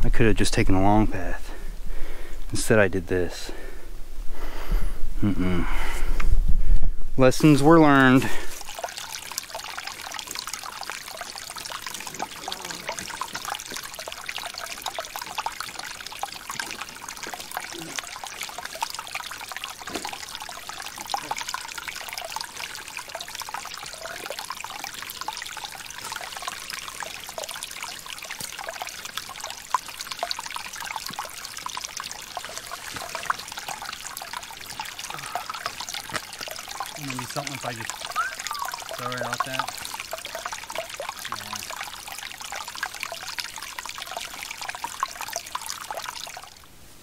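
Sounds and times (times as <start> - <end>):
stream babbling over rocks: 7.2 - 47.0.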